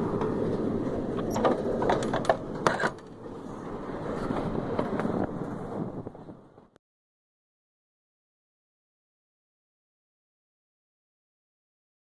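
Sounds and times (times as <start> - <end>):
low outdoor noise: 0.0 - 6.8
sharp metallic clicks and knocks: 1.2 - 3.2.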